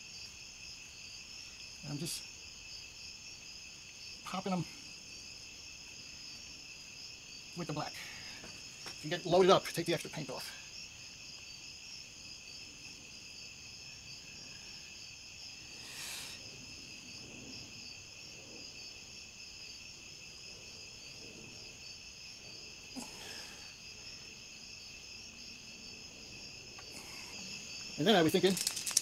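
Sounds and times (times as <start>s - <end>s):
insects trilling: 0.0s - 29.0s.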